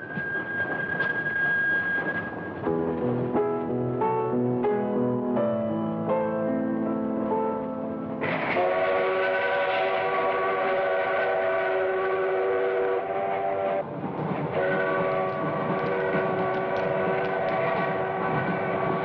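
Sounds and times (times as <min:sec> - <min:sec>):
train running noise: 0:00.0 - 0:06.2, 0:07.2 - 0:19.0
steam locomotive whistle blasts: 0:08.2 - 0:13.8, 0:14.5 - 0:19.0.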